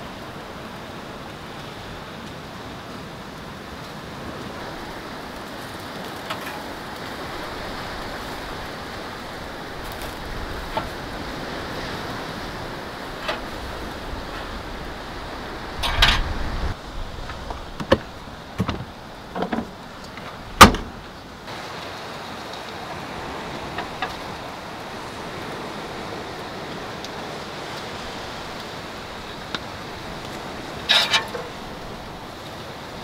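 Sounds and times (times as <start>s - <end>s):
surf: 0.0s - 33.0s
wind: 0.0s - 33.0s
rustling: 4.9s - 21.3s, 29.4s - 32.4s
lid or door clunk: 15.8s - 16.3s, 20.6s - 21.0s.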